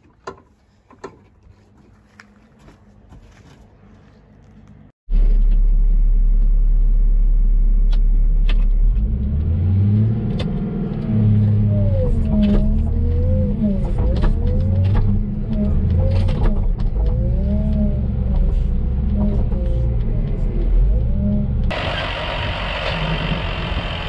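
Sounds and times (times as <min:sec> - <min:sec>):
farm machine engine running: 0:21.6 - 0:24.0.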